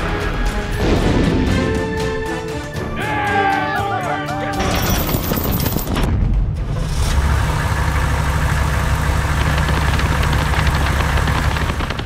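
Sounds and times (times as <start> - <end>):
truck engine droning: 6.7 - 12.0.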